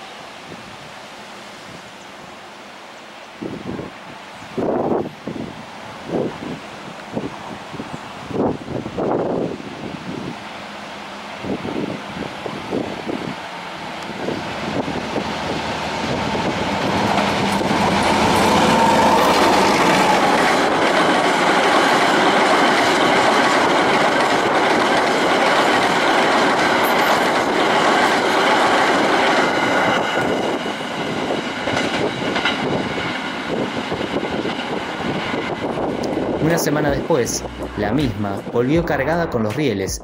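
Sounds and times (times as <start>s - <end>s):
freight train rumbling past: 3.4s - 40.0s
wheels clacking over rail joints: 14.6s - 36.4s.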